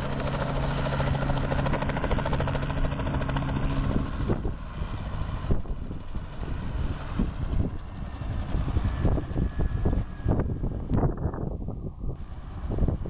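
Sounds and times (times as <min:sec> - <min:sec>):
helicopter engine hum: 0:00.0 - 0:13.0
helicopter rotor chopping: 0:00.0 - 0:13.0.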